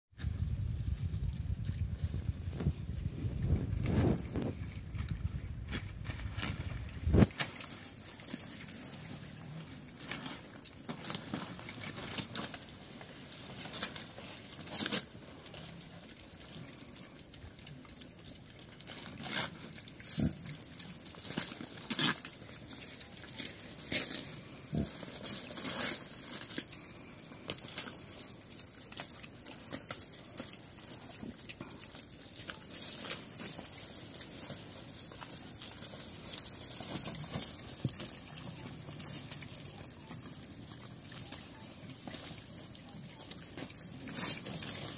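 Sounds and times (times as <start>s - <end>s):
pigs crunching and tearing leaves: 0.2s - 44.9s
pig grunting: 24.3s - 25.4s.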